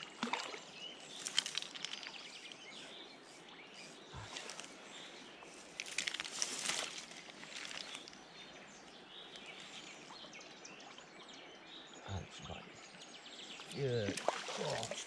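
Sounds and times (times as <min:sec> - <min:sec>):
faint bird chirps: 0:00.8 - 0:14.1
riverside ambience: 0:01.0 - 0:10.1, 0:12.0 - 0:15.0
rustling and handling noise: 0:01.1 - 0:02.3, 0:05.6 - 0:08.2.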